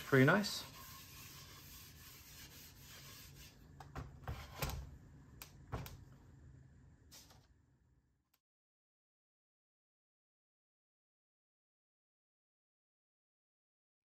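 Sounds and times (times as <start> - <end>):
oily rag rubbing wooden bowl: 0.0 - 3.7.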